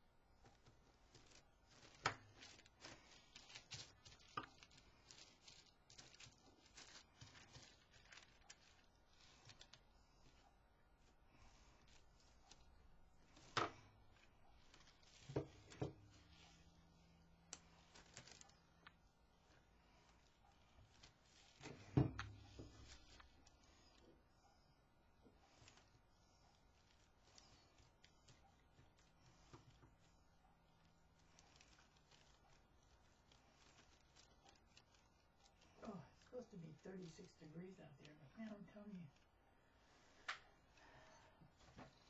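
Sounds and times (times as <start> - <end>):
tissue paper rustling and tearing: 0.5 - 10.5, 11.4 - 18.9, 30.8 - 39.2.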